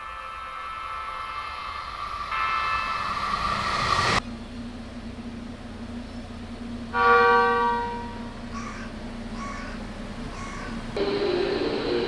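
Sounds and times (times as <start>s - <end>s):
train horn: 0.0s - 3.5s, 6.9s - 8.4s
passing express train rush: 0.0s - 12.0s
low steady hum: 3.0s - 12.0s.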